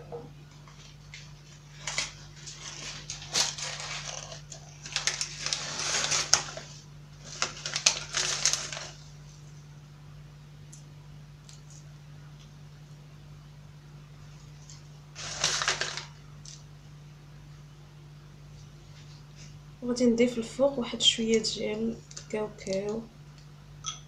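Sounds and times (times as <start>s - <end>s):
steady low hum: 0.0s - 24.0s
rustling handling noise: 0.6s - 9.6s, 14.2s - 16.6s.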